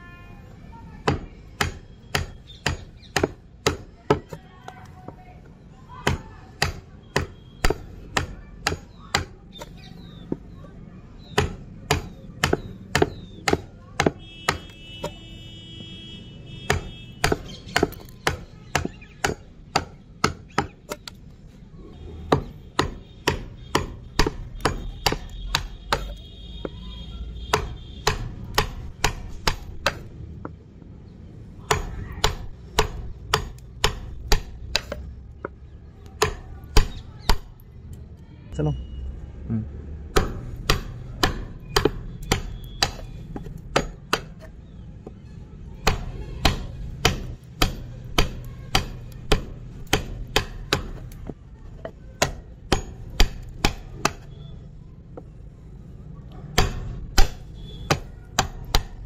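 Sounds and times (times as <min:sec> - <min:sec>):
chisel knocking into wood: 0:01.0 - 0:04.4, 0:16.7 - 0:21.1, 0:22.3 - 0:26.8, 0:27.5 - 0:30.6, 0:31.7 - 0:37.6, 0:40.1 - 0:45.2, 0:45.8 - 0:54.3, 0:56.6 - 0:59.0.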